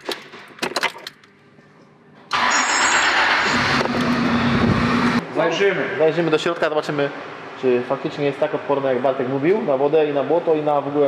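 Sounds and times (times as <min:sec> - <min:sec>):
car engine starting and idling: 0:02.3 - 0:07.2.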